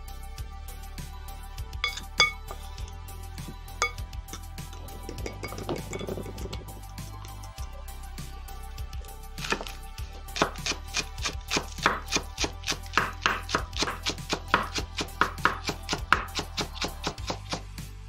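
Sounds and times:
background music: 0:00.0 - 0:18.0
knife chopping on wooden board: 0:09.4 - 0:09.7, 0:10.4 - 0:17.7.

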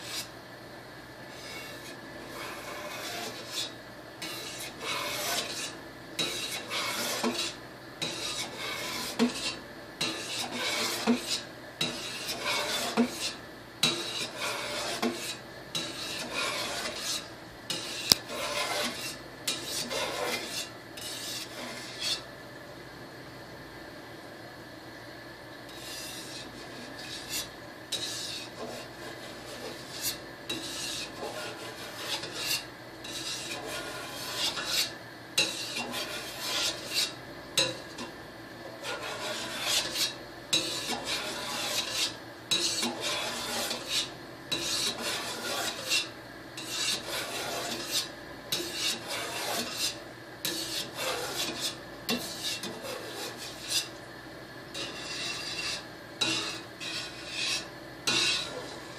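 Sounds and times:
knife scraping metal pot: 0:00.0 - 0:00.3, 0:01.3 - 0:22.3, 0:25.7 - 0:38.1, 0:38.8 - 0:54.0, 0:54.7 - 0:58.9.

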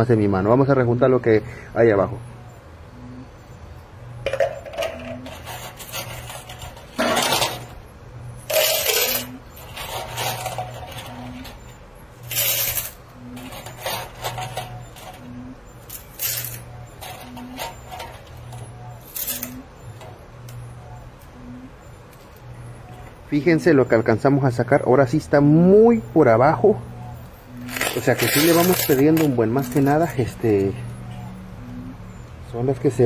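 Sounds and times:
machine hum: 0:00.0 - 0:33.0
coins clattering: 0:04.3 - 0:07.8, 0:08.5 - 0:11.6, 0:12.2 - 0:15.3, 0:15.9 - 0:19.7, 0:27.6 - 0:30.1.

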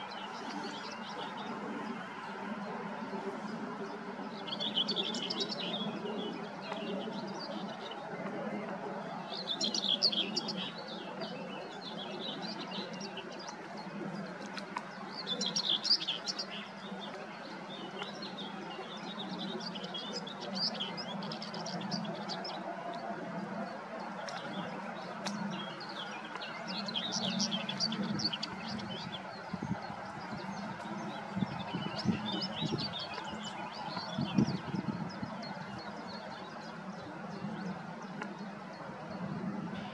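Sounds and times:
warbler singing: 0:04.2 - 0:08.0, 0:09.3 - 0:13.9, 0:15.0 - 0:22.6, 0:24.3 - 0:38.5.

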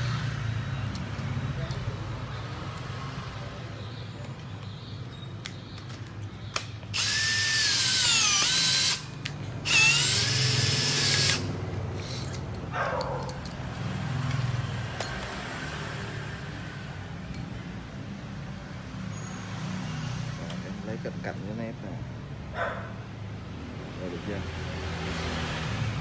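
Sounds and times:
cordless drill motor straining: 0:06.9 - 0:12.4.

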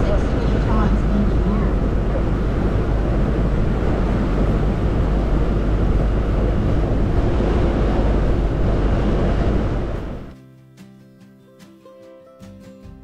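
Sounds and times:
boat engine running: 0:00.0 - 0:10.3
wind buffeting microphone: 0:00.0 - 0:10.4.

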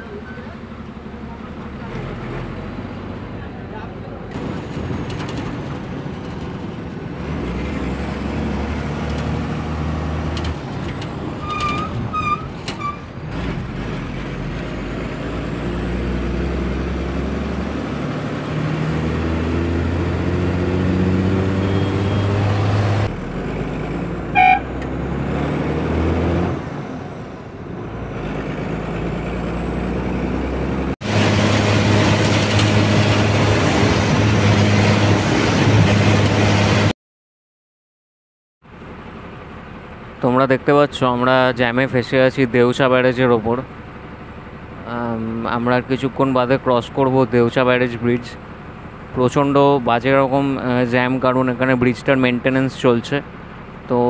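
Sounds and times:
bus engine while driving: 0:00.0 - 0:36.9, 0:38.7 - 0:54.0
horn tooting: 0:11.4 - 0:13.1, 0:24.3 - 0:24.8.

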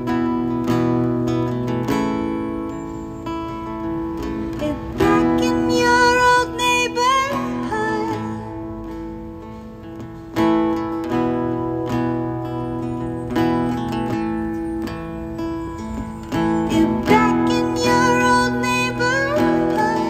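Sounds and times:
acoustic guitar strumming: 0:00.0 - 0:20.0
person singing long notes: 0:04.4 - 0:08.9, 0:16.4 - 0:20.0.

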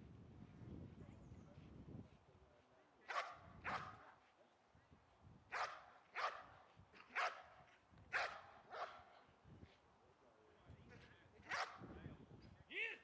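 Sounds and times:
dog barking: 0:03.1 - 0:04.1, 0:05.5 - 0:09.1, 0:11.5 - 0:11.8.

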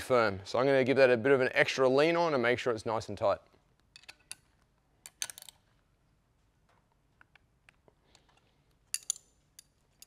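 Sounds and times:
spanner metal clicks: 0:08.9 - 0:10.0.

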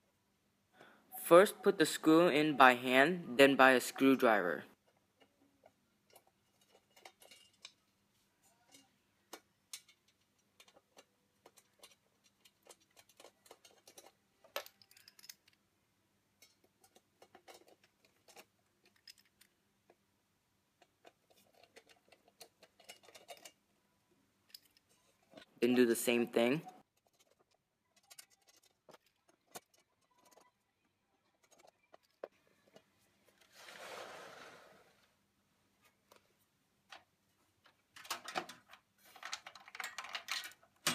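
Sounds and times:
screw clicking and scraping: 0:06.1 - 0:07.9, 0:08.6 - 0:15.6, 0:16.4 - 0:19.6, 0:20.8 - 0:23.6, 0:27.0 - 0:30.6, 0:31.4 - 0:33.6.

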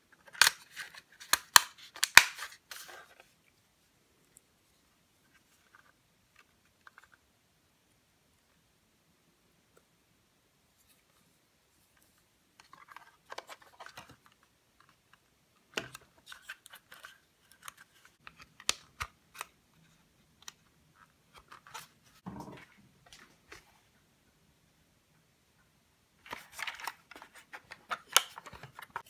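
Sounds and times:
plastic parts clicking and scraping: 0:00.1 - 0:03.4, 0:11.9 - 0:22.2, 0:26.2 - 0:29.0.

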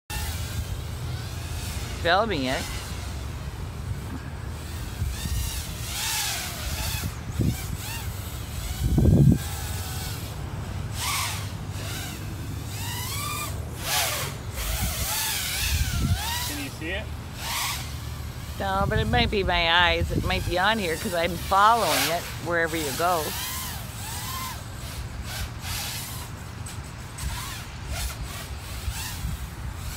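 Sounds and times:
drone propeller whine: 0:00.1 - 0:29.9
low wind rumble on microphone: 0:00.4 - 0:10.8, 0:14.5 - 0:16.9, 0:18.4 - 0:21.7, 0:27.0 - 0:29.9.

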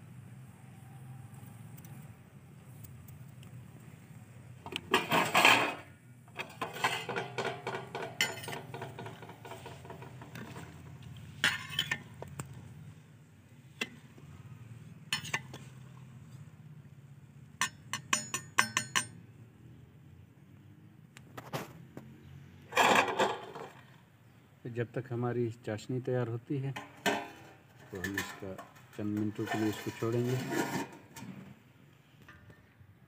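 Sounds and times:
loud metal clatter: 0:04.9 - 0:10.8, 0:22.7 - 0:23.8, 0:26.8 - 0:31.4
metal skimmer scraping steel pot: 0:04.9 - 0:12.5, 0:15.1 - 0:15.8, 0:26.7 - 0:31.6.

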